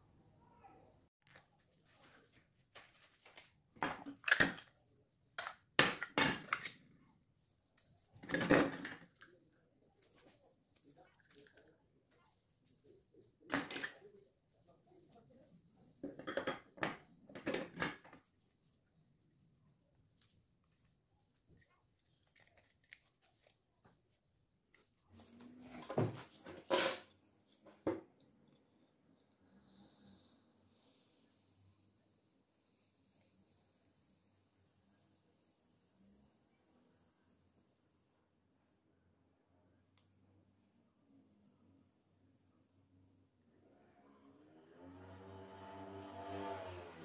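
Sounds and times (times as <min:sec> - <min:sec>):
tools clattering and knocking: 0:25.8 - 0:27.1.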